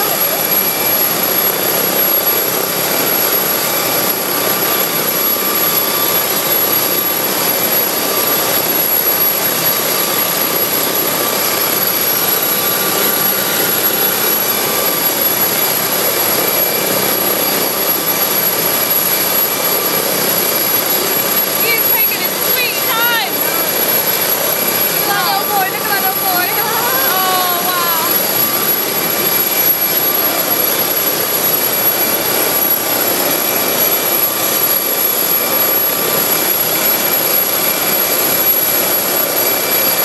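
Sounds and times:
helicopter turbine engines running: 0:00.0 - 0:40.0.

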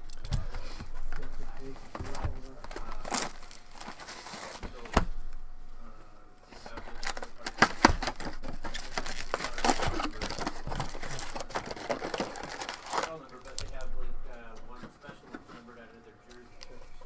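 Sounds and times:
cardboard box rustling: 0:00.7 - 0:05.0, 0:06.6 - 0:13.8.

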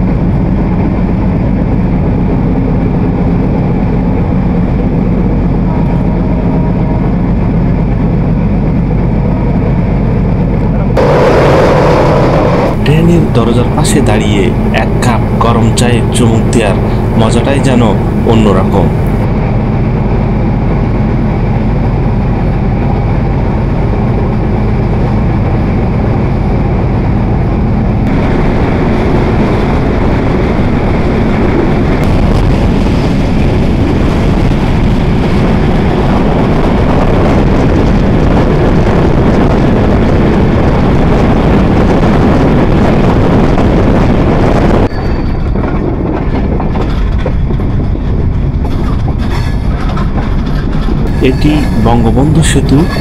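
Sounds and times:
train wheels rumbling on rails: 0:00.0 - 0:53.0
rushing air: 0:10.9 - 0:53.0.

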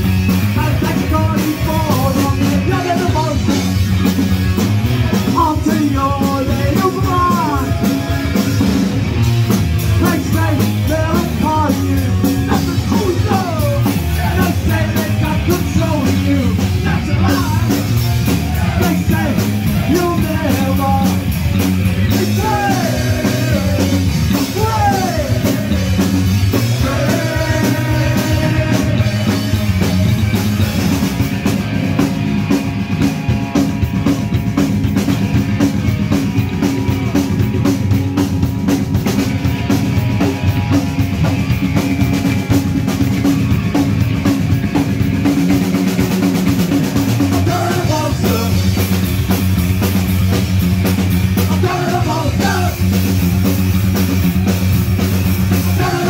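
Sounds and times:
punk rock band playing live: 0:00.0 - 0:56.0
person singing: 0:05.3 - 0:08.9, 0:22.1 - 0:29.8, 0:47.4 - 0:48.8, 0:51.4 - 0:53.0, 0:55.6 - 0:56.0.

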